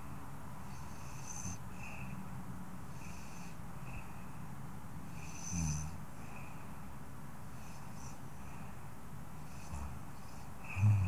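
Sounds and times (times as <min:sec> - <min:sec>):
woman snoring: 0:05.2 - 0:06.0, 0:10.7 - 0:11.0.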